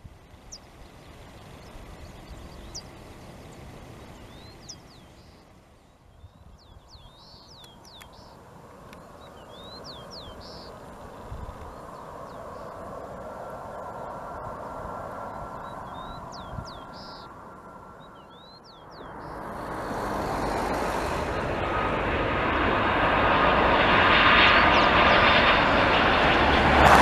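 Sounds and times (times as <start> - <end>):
faint steady whine: 0.0 - 25.7
distant jet engine: 0.0 - 27.0
bird chirping: 0.4 - 8.4, 9.0 - 10.9, 15.2 - 17.4, 18.0 - 19.7.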